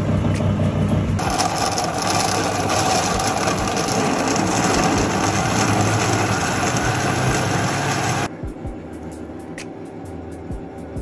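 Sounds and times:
blender motor whirring: 1.2s - 8.3s.

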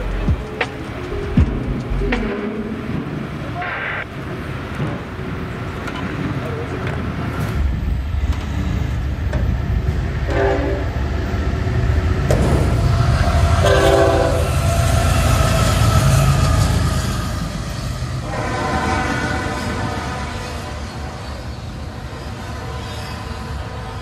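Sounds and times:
freight cars rolling: 0.0s - 24.0s
locomotive rumble: 0.0s - 24.0s
train horn blasts: 10.2s - 11.0s, 13.6s - 14.7s, 18.2s - 24.0s.

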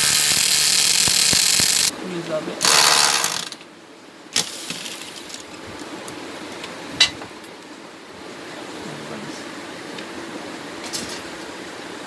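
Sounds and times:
sharp metallic clicks: 0.0s - 1.9s
steady background hum: 0.0s - 12.0s.

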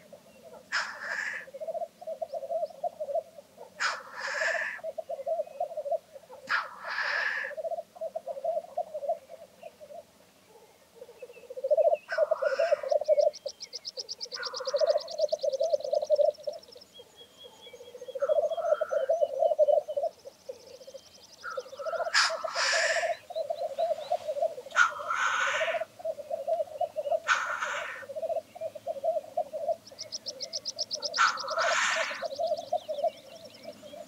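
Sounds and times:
grouse hissing sneeze calls: 0.6s - 1.5s, 3.6s - 4.9s, 6.3s - 7.7s, 12.1s - 13.1s, 21.4s - 26.4s, 27.2s - 28.3s, 31.0s - 32.3s
grouse bubbling song: 11.0s - 16.8s, 18.1s - 34.0s.

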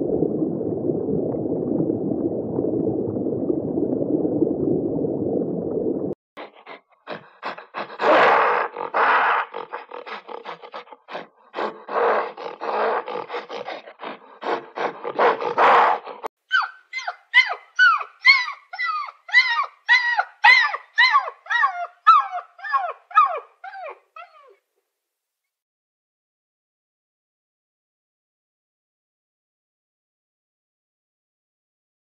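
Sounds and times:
harsh raspy animal calls: 6.4s - 18.4s
puppy yelping howls: 16.5s - 24.6s.

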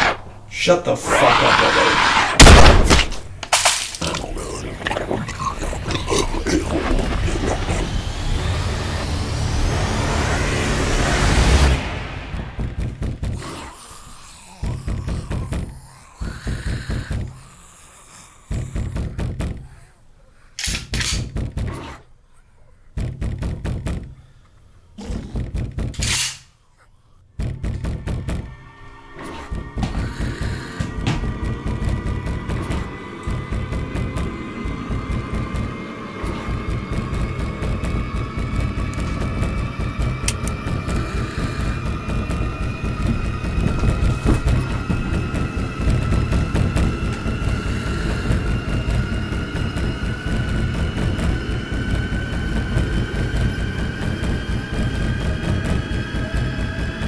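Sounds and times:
heavy thudding blows: 1.0s - 3.4s, 4.0s - 17.6s, 18.4s - 19.9s, 27.4s - 57.0s
weaker blast: 1.0s - 3.4s
gunshot: 2.2s - 3.3s.

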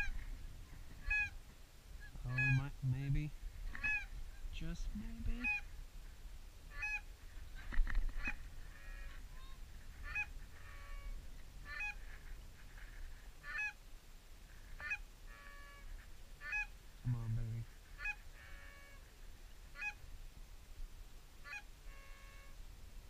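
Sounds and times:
goose honking: 1.0s - 1.4s, 2.0s - 2.7s, 3.8s - 4.1s, 5.4s - 5.7s, 6.7s - 12.2s, 13.4s - 13.8s, 14.8s - 16.7s, 17.9s - 19.1s, 19.8s - 20.0s, 21.4s - 22.6s.

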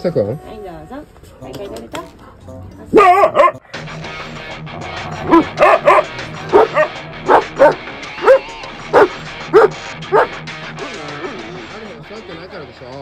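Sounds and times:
background music: 2.5s - 13.0s
dog yipping: 2.9s - 3.6s, 5.3s - 10.3s.

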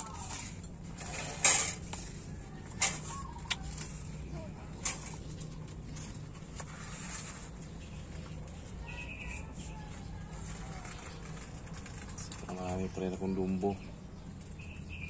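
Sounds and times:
cardboard rustling scrapes: 0.0s - 12.5s
steady low hum: 0.0s - 15.0s.

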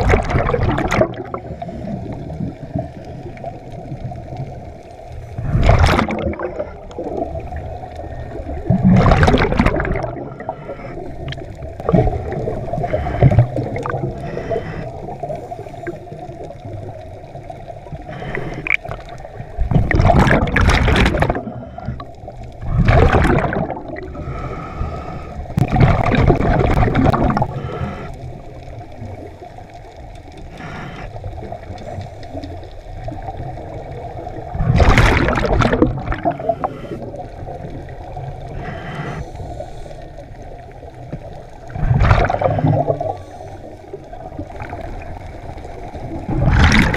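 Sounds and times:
exhaled bubbles underwater: 0.0s - 46.9s.

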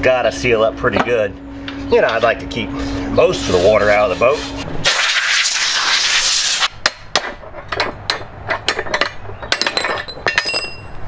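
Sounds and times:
short metallic ring: 9.5s - 11.0s.

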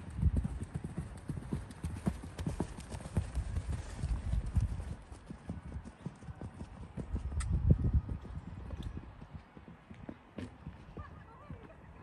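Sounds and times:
hoofbeats on sand: 0.3s - 7.3s.

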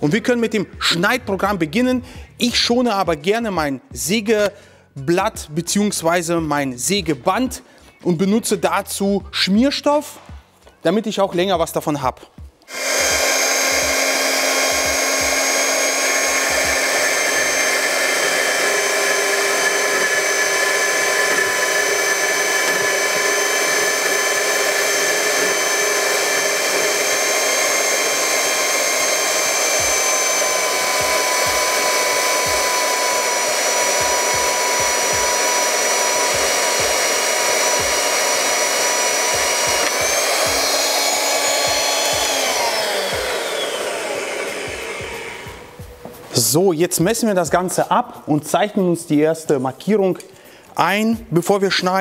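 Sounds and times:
band saw cutting steel: 12.7s - 46.0s.

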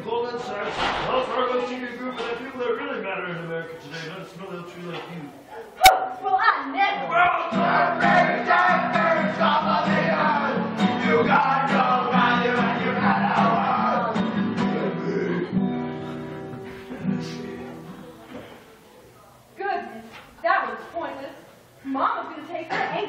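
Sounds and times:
people singing: 7.1s - 18.0s.

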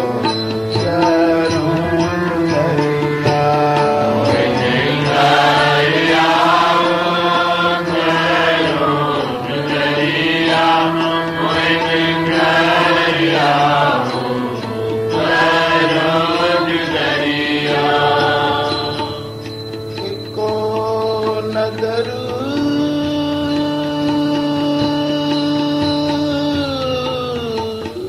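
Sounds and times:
person chanting a hymn: 0.0s - 19.4s
steady held drone: 0.0s - 25.9s.

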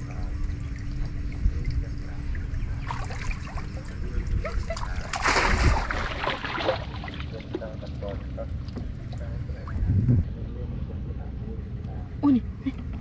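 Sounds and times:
water trickling and splashing: 0.0s - 9.7s
loud water splash: 4.6s - 7.4s.

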